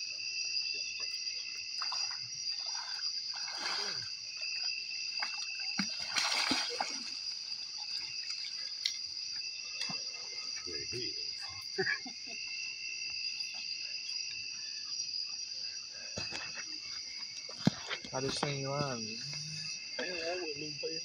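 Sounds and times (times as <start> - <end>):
crickets chirping: 0.0 - 21.0
water splashing: 1.7 - 10.2.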